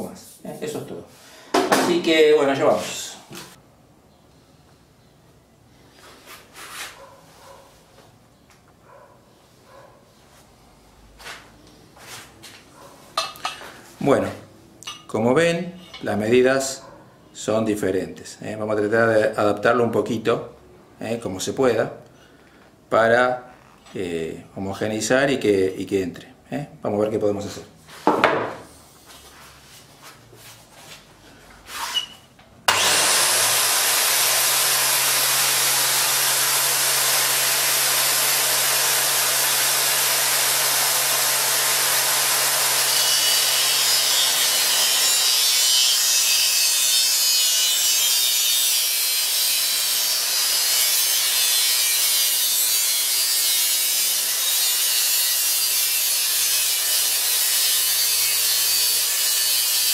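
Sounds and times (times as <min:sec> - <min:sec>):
angle grinder running: 0:32.7 - 0:59.9
grinder grinding metal tube: 0:32.7 - 0:59.9.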